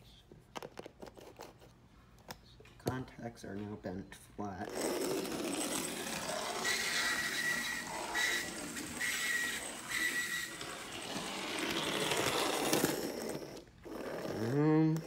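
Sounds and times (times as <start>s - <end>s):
model locomotive motor whirring: 4.7s - 15.0s
high squeal: 6.5s - 11.3s.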